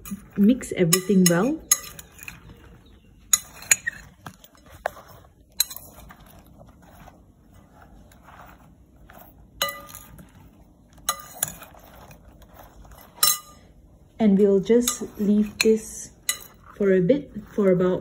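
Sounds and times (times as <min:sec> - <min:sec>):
vegetable pieces clinking on glass bowl: 0:00.0 - 0:04.8, 0:05.5 - 0:06.4, 0:09.6 - 0:13.7, 0:14.7 - 0:18.0
soft rustling of vegetable pieces: 0:00.0 - 0:18.0.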